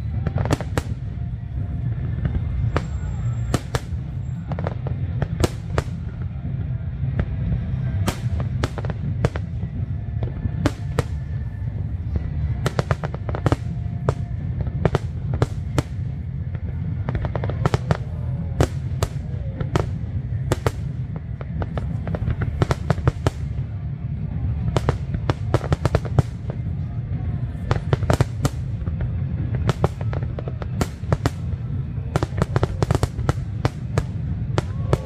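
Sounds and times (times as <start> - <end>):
fireworks crackling: 0.0 - 35.0
low rumble of shell bursts: 0.0 - 35.0.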